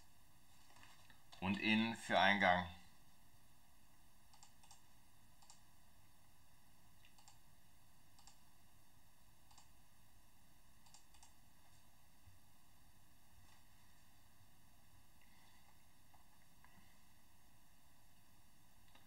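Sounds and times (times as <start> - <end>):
faint computer mouse clicks: 4.3 - 4.8, 5.4 - 5.6, 7.0 - 7.4, 8.2 - 8.4, 9.5 - 9.7, 10.8 - 11.4.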